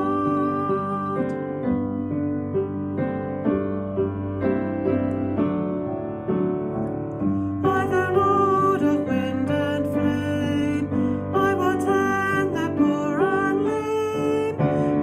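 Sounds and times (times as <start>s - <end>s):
person singing: 0.0s - 3.0s, 7.4s - 15.0s
piano playing hymn chords: 0.0s - 15.0s.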